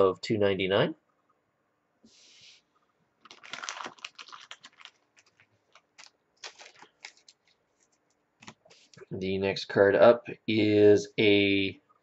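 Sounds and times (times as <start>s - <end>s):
cards rustling: 3.2s - 9.0s.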